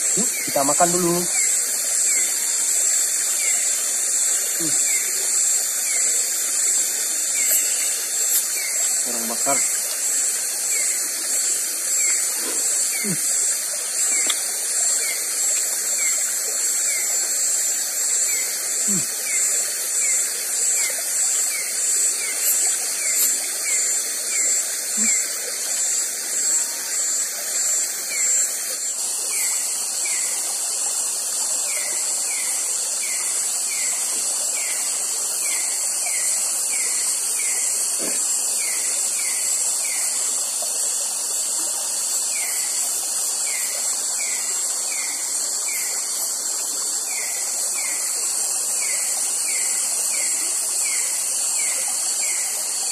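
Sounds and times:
insect chorus shrill hum: 0.0 - 52.9
short falling insect chirp: 0.2 - 27.2.

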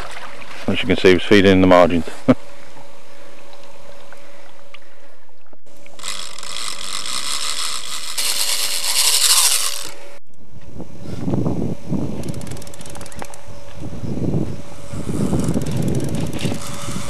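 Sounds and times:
fishing reel clicker buzzing: 5.8 - 10.2, 12.1 - 13.9, 14.8 - 17.0.

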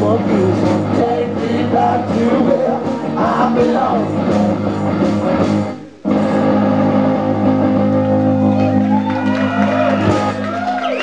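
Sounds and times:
person singing: 0.0 - 5.4
rock band playing: 0.0 - 11.0.

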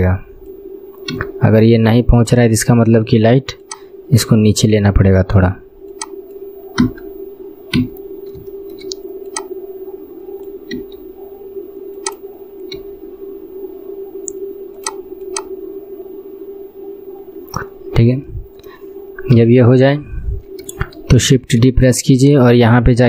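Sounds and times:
steady low hum: 0.0 - 23.0
mouse clicks: 8.7 - 9.5, 12.0 - 12.8, 14.2 - 15.5.

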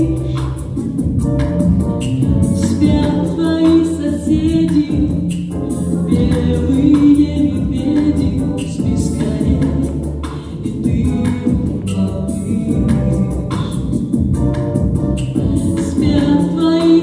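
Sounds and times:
woman singing pop song: 0.0 - 1.4, 2.4 - 14.2, 15.3 - 17.0
backing track with percussion beat: 0.0 - 17.0.

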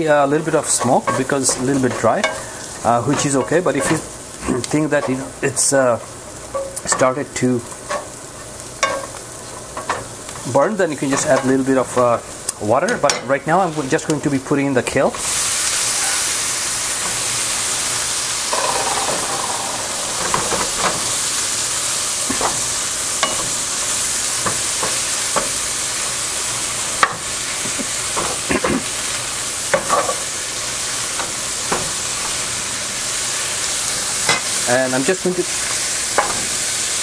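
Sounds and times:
kale sizzling in a frying pan: 0.0 - 37.0
spatula scraping and tapping pan: 0.6 - 5.3, 7.7 - 8.2, 8.8 - 12.2, 22.3 - 23.6, 24.4 - 25.6, 29.7 - 30.3.

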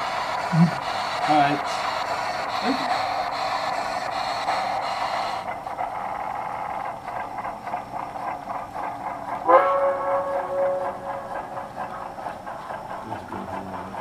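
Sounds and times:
steam locomotive chuffing: 0.0 - 14.0
steam whistle blast: 9.5 - 11.0.

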